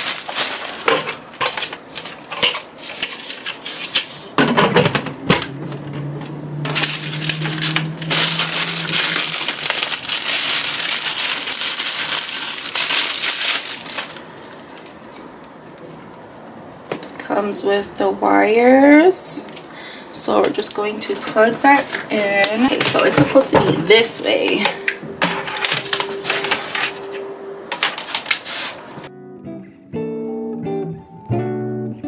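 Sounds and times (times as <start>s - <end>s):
plastic packaging crinkling: 0.0s - 4.4s, 6.6s - 16.2s, 20.4s - 29.0s.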